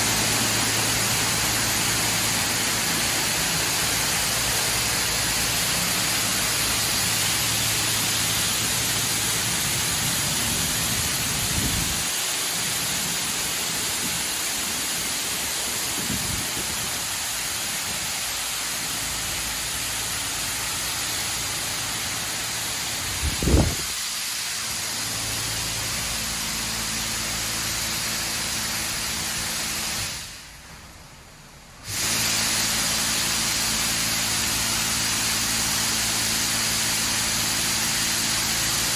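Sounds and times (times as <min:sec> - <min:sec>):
car wash water spray hissing: 0:00.0 - 0:38.9.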